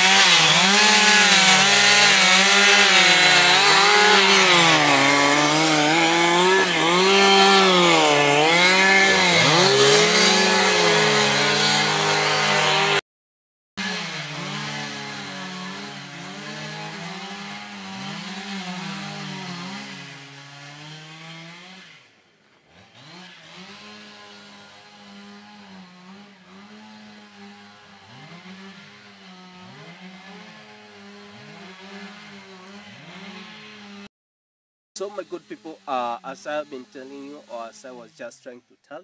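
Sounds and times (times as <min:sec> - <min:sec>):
chainsaw cutting wood: 0:00.0 - 0:13.0, 0:13.8 - 0:34.1, 0:35.0 - 0:38.4.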